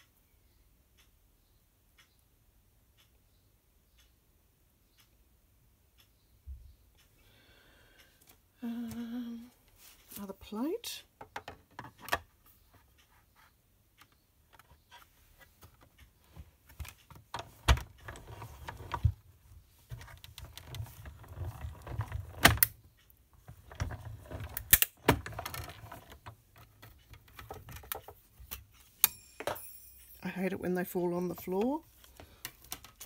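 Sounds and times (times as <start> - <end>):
sharp clicks and clunks: 13.9 - 30.1.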